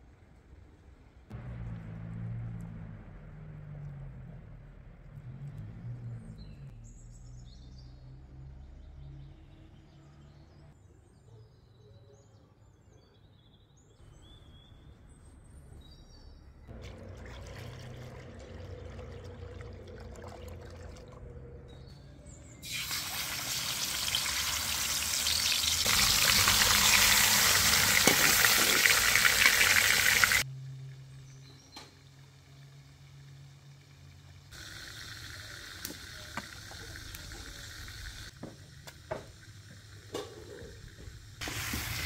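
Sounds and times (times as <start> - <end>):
juice pouring and splashing: 16.7 - 21.3, 22.6 - 30.4
chicken sizzling in a pot: 22.6 - 30.4, 34.0 - 40.8, 41.4 - 42.0.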